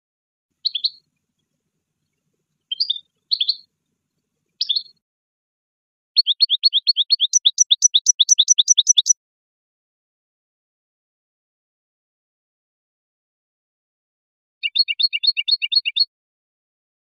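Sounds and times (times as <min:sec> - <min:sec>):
finch song: 0:00.5 - 0:05.0, 0:06.2 - 0:09.2, 0:14.6 - 0:16.1.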